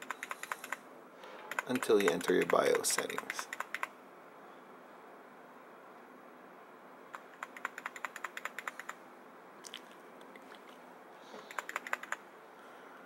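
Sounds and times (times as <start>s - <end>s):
keyboard key clicks: 1.5s - 3.9s, 7.1s - 9.0s, 11.5s - 12.2s.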